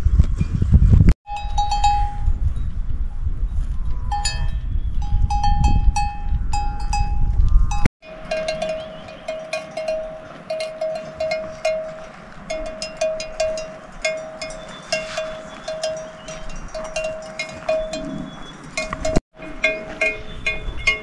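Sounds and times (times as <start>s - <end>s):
wind rumble on microphone: 0.0s - 21.0s
cattle bells clanking: 1.3s - 2.4s, 4.1s - 21.0s
lower-pitched bell ringing: 1.3s - 2.4s, 4.1s - 21.0s.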